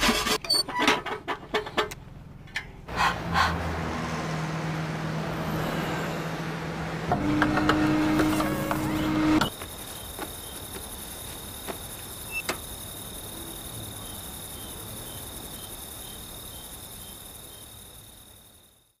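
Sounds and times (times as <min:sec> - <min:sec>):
crickets chirping: 0:09.5 - 0:19.0.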